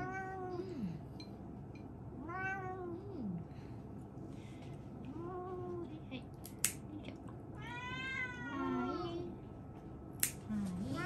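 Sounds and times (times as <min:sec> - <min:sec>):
cat meowing: 0:07.6 - 0:09.2.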